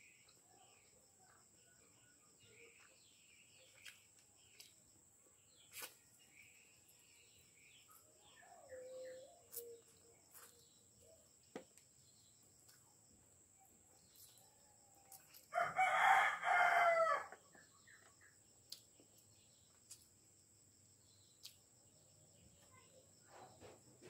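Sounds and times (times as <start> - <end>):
rooster crowing: 15.5 - 17.4.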